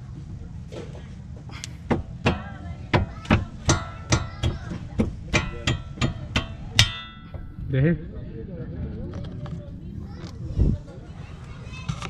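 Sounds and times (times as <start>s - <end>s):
hammer striking steel: 1.9s - 7.7s.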